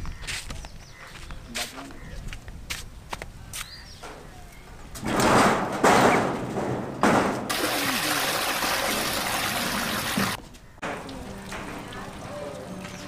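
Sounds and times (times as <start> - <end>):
sheet-metal door banging shut: 5.0 - 7.6.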